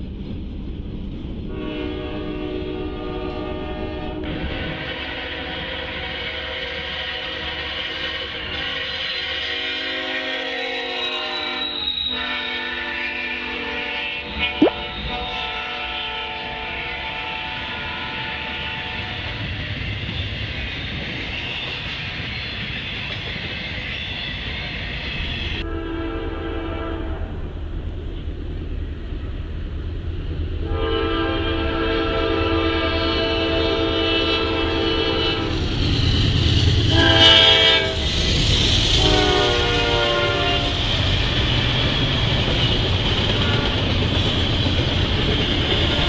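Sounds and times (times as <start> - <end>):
freight train rolling on rails: 0.0 - 46.0
locomotive horn blasts: 1.5 - 5.7, 9.4 - 19.4, 25.2 - 27.4, 30.6 - 35.6, 36.9 - 38.0, 39.0 - 40.8.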